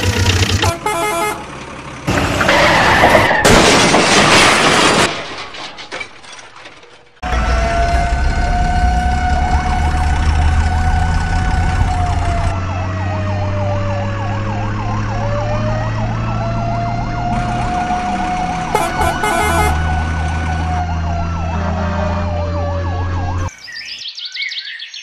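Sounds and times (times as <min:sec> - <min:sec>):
fire engine siren: 0:07.2 - 0:23.5
low engine drone: 0:07.2 - 0:23.5.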